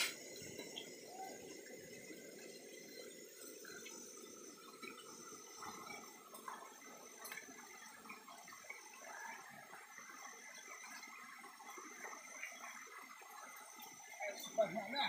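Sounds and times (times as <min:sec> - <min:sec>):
water cascading down rock: 0:00.0 - 0:00.6.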